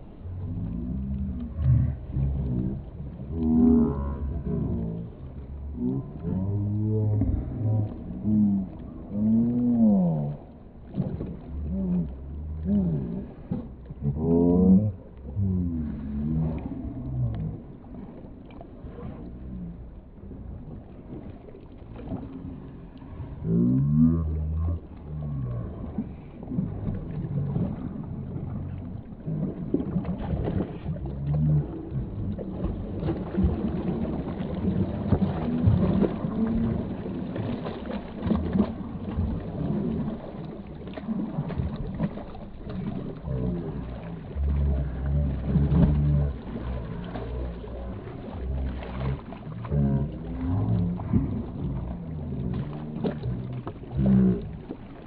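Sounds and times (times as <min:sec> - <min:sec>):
deep drawn-out voice-like sound: 0:00.0 - 0:18.2, 0:22.0 - 0:54.8
dogs splashing in water: 0:29.3 - 0:55.0.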